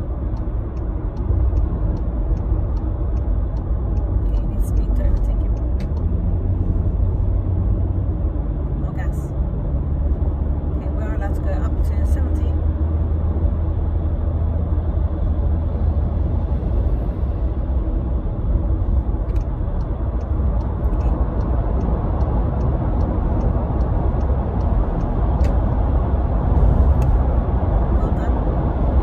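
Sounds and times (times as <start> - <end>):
car cabin road rumble: 0.0 - 29.0
faint regular ticking: 0.3 - 6.1, 19.2 - 25.6.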